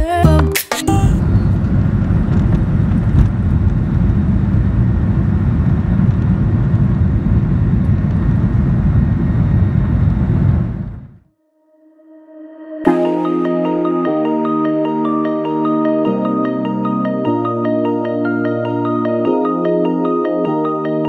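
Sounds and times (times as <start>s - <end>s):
jet engines roaring in cabin: 1.2s - 11.2s.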